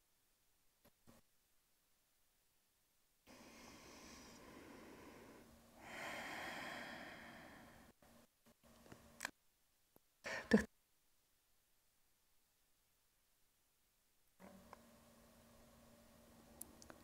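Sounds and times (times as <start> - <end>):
person breathing softly: 3.3 - 8.1.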